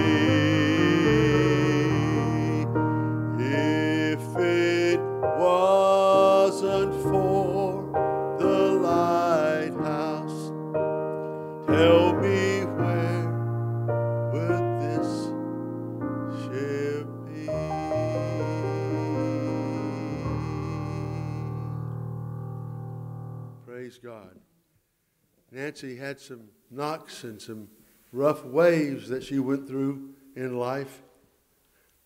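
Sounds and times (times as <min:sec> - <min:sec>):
person singing with vibrato: 0:00.0 - 0:10.6, 0:11.6 - 0:13.5, 0:14.3 - 0:15.4, 0:16.3 - 0:22.1
sustained piano chords: 0:00.0 - 0:23.7.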